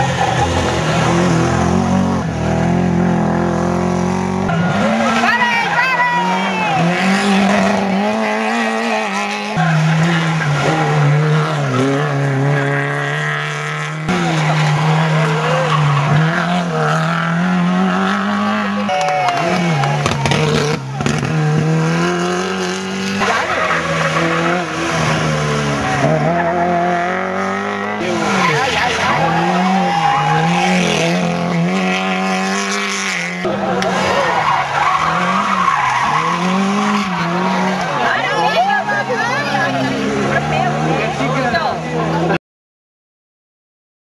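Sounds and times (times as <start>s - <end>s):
rally car engines revving: 0.0s - 42.4s
tyres squealing: 22.8s - 31.3s, 33.5s - 41.6s.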